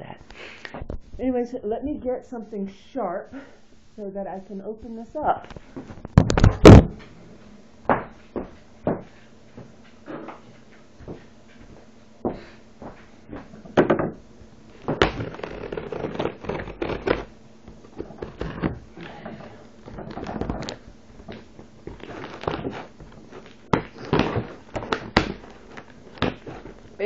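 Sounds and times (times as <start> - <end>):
objects knocking and rustling: 5.5 - 7.2, 7.9 - 15.3, 17.6 - 27.0.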